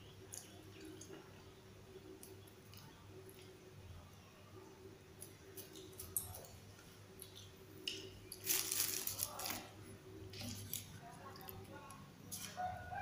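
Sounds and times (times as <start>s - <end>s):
leaves rustling: 8.4s - 9.6s.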